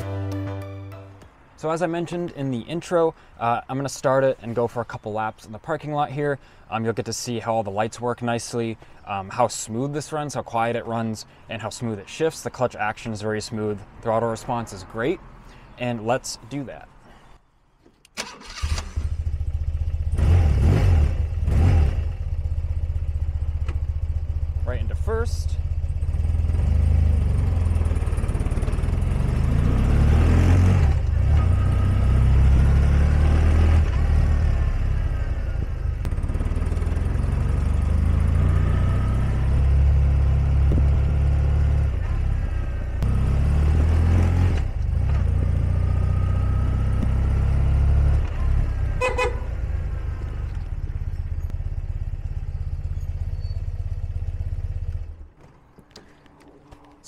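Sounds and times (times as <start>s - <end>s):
motorcycle engine revving: 18.4s - 55.2s.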